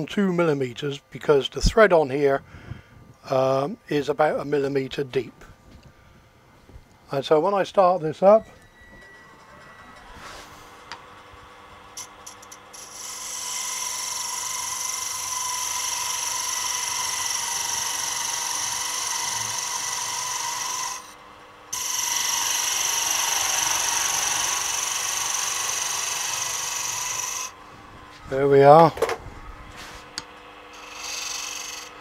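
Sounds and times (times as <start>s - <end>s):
wood lathe tool scraping: 12.0s - 27.6s, 29.8s - 32.0s.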